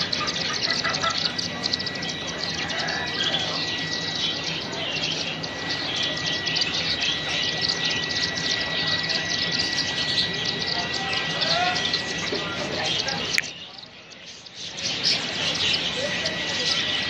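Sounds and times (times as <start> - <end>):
small birds chirping and chattering: 0.0 - 17.0
thin steady high tone: 0.0 - 17.0.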